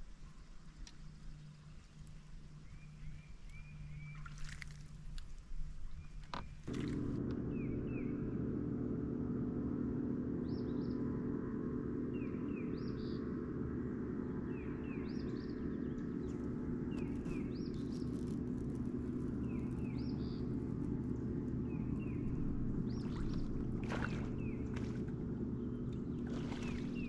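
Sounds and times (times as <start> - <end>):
bird calling: 21.6 - 27.0.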